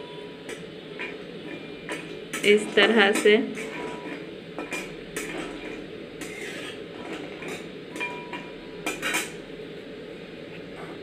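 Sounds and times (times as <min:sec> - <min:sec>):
steady low hiss: 0:00.0 - 0:11.0
metal spatula scraping a pan: 0:01.0 - 0:09.4.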